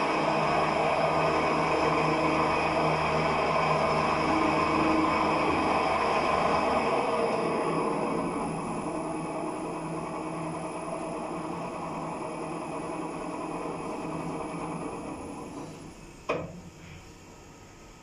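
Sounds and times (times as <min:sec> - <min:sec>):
lift rumbling in shaft: 0:00.0 - 0:16.9
sharp clunk: 0:16.3 - 0:16.7.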